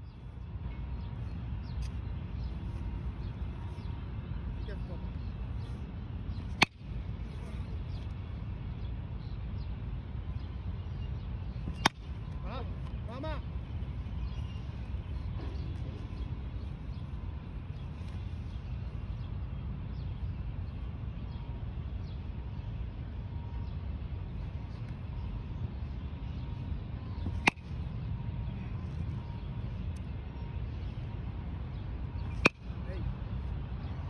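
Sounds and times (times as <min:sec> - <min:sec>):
steady low rumble: 0:00.0 - 0:34.0
metal bat hitting ball: 0:32.3 - 0:32.6.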